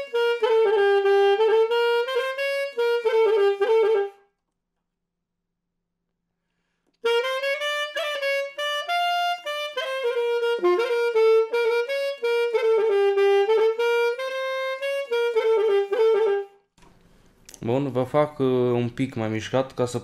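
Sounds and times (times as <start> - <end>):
solo saxophone melody: 0.0 - 4.4, 7.0 - 16.7.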